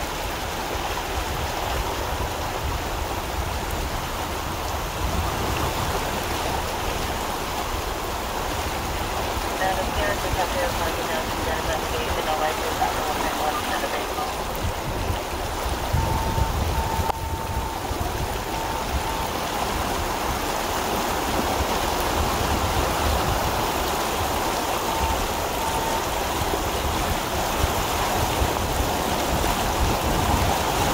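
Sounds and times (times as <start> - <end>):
heavy rain on floodwater: 0.0 - 30.9.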